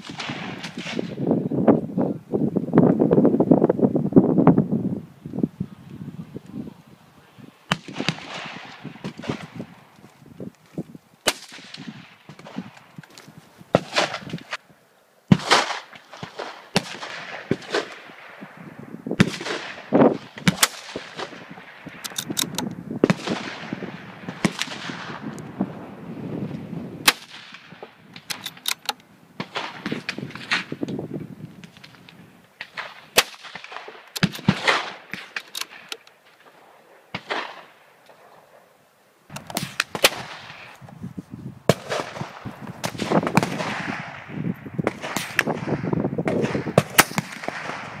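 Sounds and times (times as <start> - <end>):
gunshots with echoes: 7.7 - 9.6, 32.6 - 35.9, 41.7 - 48.0.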